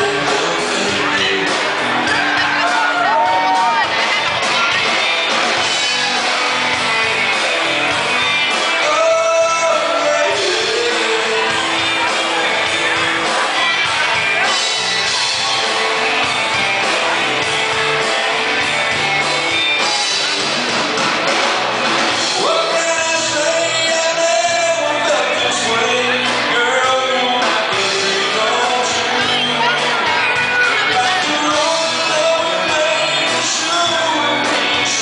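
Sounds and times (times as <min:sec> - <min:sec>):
onlookers shouting: 0:00.0 - 0:20.3
loud music with singing: 0:00.0 - 0:35.0.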